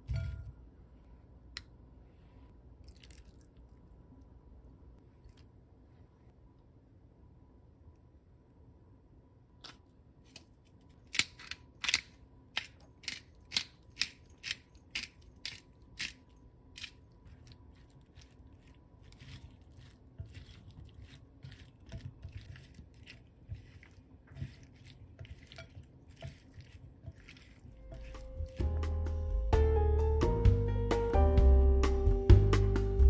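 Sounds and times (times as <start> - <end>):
pepper mill grinding: 12.6 - 28.8
salad stirred in glass bowl: 13.3 - 28.8.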